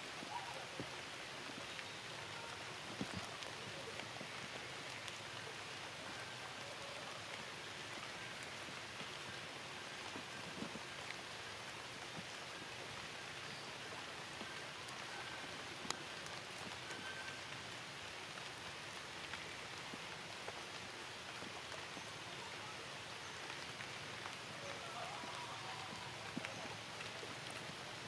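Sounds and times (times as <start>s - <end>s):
steady rain: 0.0s - 28.0s.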